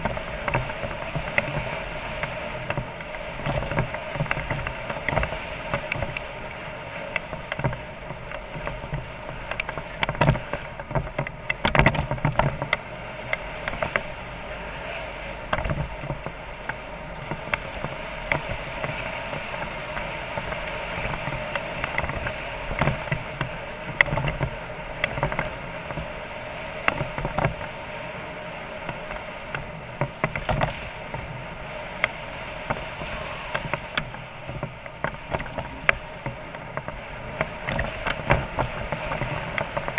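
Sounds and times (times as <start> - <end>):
knocks and rattles over bumps: 7.1 - 14.2, 15.4 - 26.1, 28.9 - 39.9.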